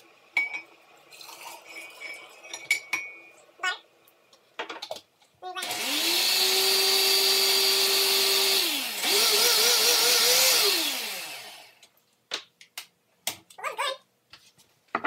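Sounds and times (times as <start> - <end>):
blender whirring: 5.6 - 11.8.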